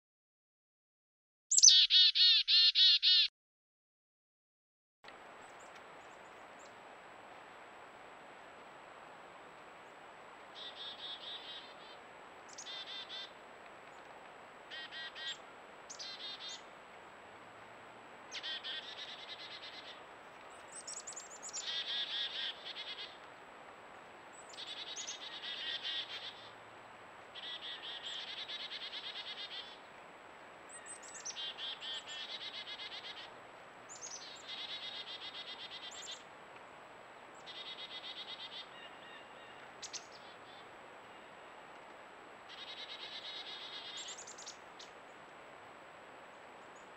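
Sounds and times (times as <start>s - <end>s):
high-pitched trilling calls: 1.5s - 3.3s
faint steady hiss: 5.1s - 46.9s.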